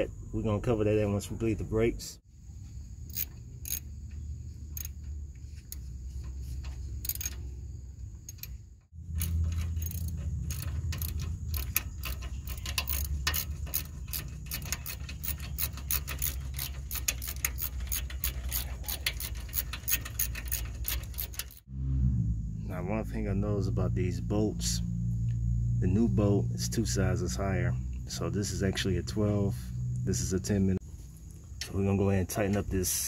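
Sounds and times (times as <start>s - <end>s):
socket ratchet clicking: 3.1s - 5.9s, 6.6s - 7.5s, 8.2s - 21.7s
low rumble: 21.6s - 30.8s.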